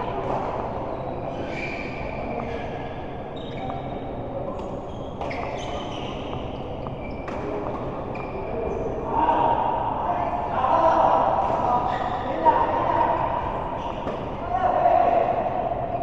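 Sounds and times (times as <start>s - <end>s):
shoes squeaking on floor: 0.0s - 9.0s, 11.7s - 12.5s, 13.8s - 14.1s
hall background noise: 0.0s - 16.0s.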